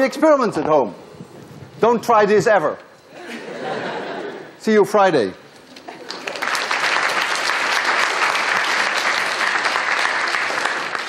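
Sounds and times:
audience applauding: 5.8s - 11.0s.

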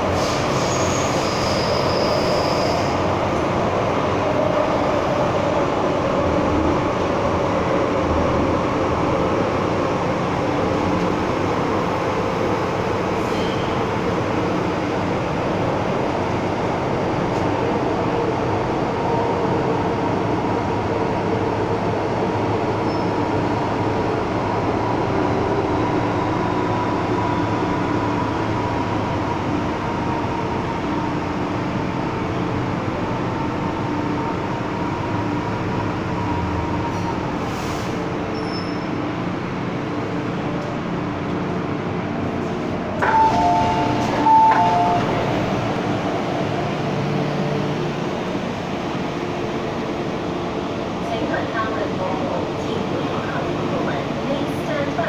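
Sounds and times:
train rumble with whine: 0.0s - 55.0s
two-tone electronic signal: 43.1s - 45.2s.

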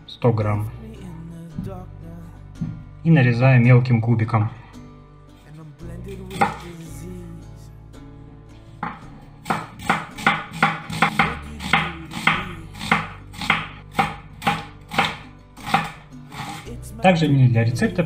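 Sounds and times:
knife chopping on wooden board: 6.3s - 6.6s, 8.8s - 16.6s.

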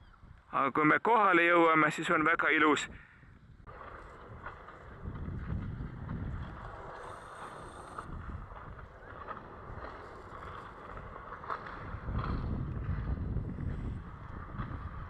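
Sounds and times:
wind buffeting microphone: 0.0s - 0.5s, 2.7s - 15.0s
steady hiss: 6.7s - 8.1s.

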